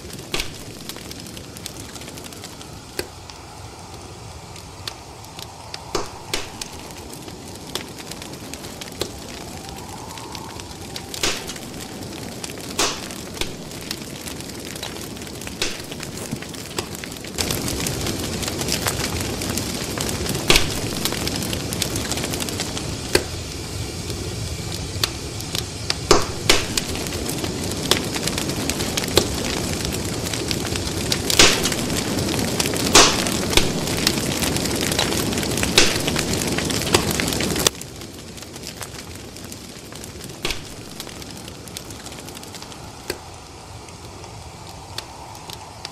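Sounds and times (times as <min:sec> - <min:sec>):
loud steady noise: 0:00.0 - 0:18.3
fire crackling: 0:00.0 - 0:45.9.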